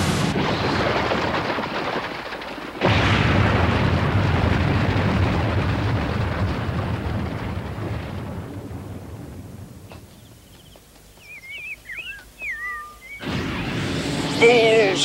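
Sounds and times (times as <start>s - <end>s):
rockslide boom and rumble: 0.0s - 11.0s.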